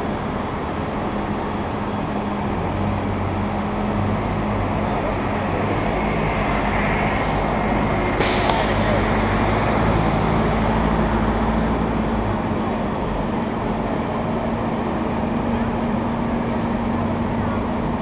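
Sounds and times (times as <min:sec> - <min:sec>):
vehicle engines humming: 0:00.0 - 0:18.0
hiss: 0:08.2 - 0:09.0.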